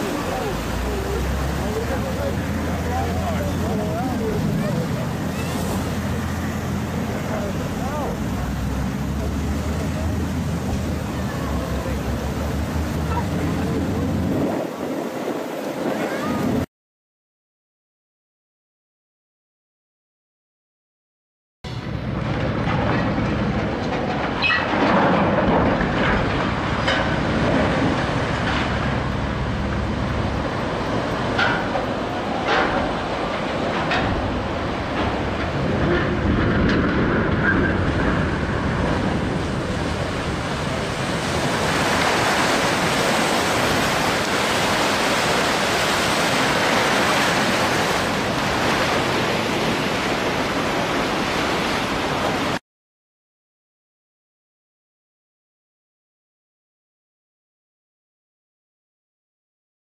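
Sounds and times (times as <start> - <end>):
churning water hiss: 0.0 - 16.6, 38.5 - 52.6
wind buffeting microphone: 9.9 - 16.7.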